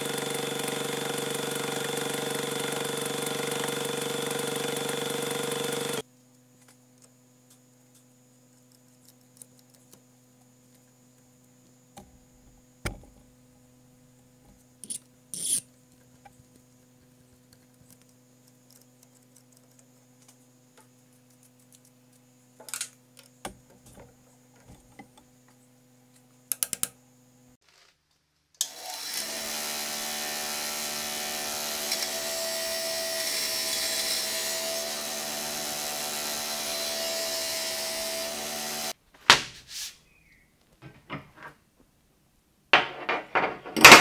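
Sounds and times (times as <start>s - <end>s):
milling machine cutting metal: 0.0s - 6.0s, 28.6s - 38.9s.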